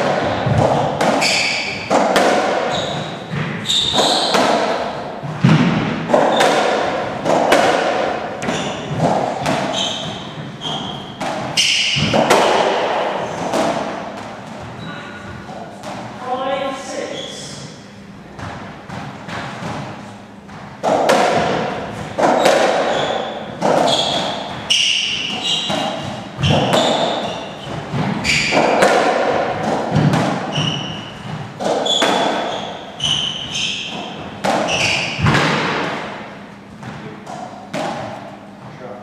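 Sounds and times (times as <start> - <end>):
ball struck by rackets: 0.0 - 14.7, 18.4 - 38.4
shoes squeaking on wooden floor: 0.4 - 1.9, 2.6 - 4.6, 8.4 - 12.1, 21.9 - 28.8, 30.0 - 35.3.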